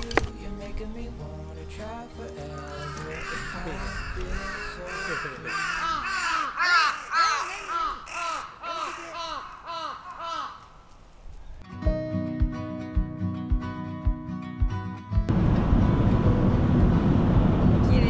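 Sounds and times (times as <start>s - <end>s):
crow cawing: 2.5s - 10.9s.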